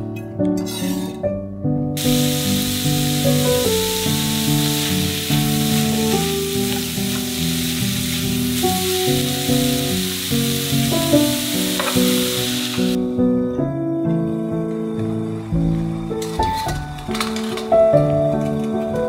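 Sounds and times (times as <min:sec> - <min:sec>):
background music: 0:00.0 - 0:19.0
food sizzling in hot oil: 0:02.0 - 0:13.0.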